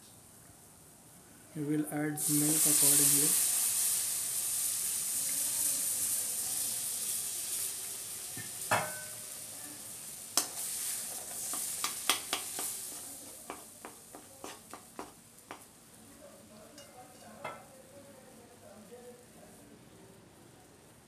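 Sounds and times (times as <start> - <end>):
milk sizzling in hot pan: 1.7 - 19.4
steel spoon clinking against pan: 8.4 - 9.2, 10.4 - 15.6, 16.7 - 17.7.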